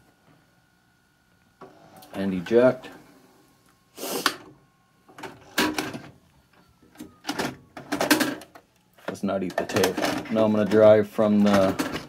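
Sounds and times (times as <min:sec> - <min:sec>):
faint motor whine: 0:00.0 - 0:12.0.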